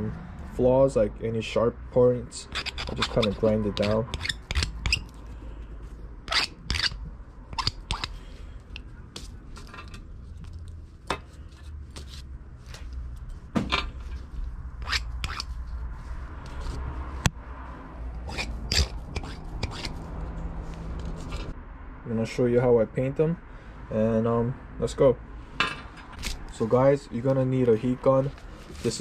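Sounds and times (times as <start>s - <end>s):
hand file scraping metal: 2.4s - 5.1s, 6.3s - 8.2s, 14.8s - 15.5s, 18.2s - 20.0s.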